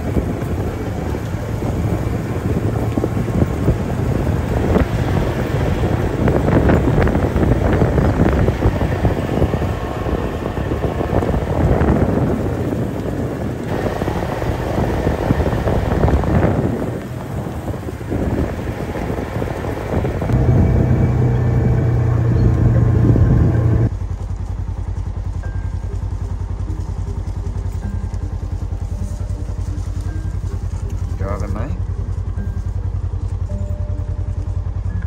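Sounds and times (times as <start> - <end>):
wind rumbling on microphone: 0.0 - 35.0
running footsteps thud and rustle: 23.9 - 34.6.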